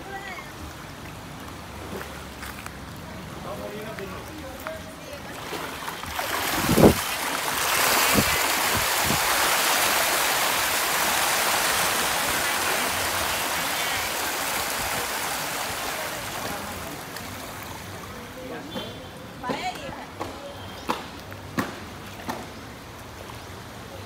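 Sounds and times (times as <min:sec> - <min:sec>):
fish thrashing and splashing water: 0:05.2 - 0:17.4.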